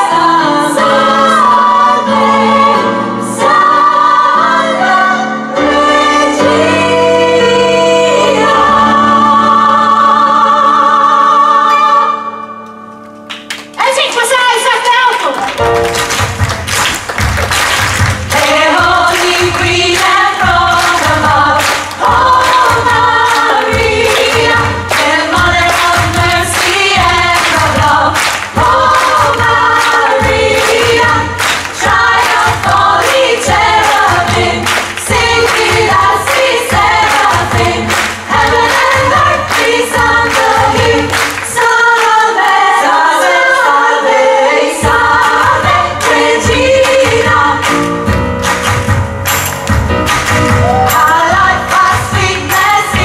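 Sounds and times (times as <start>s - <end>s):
women's choir singing gospel: 0.0s - 12.5s, 18.0s - 48.0s, 50.6s - 53.0s
backing music with bass and drums: 16.0s - 41.1s, 44.8s - 53.0s
band with steady beat: 44.9s - 53.0s
lead singer: 50.6s - 53.0s.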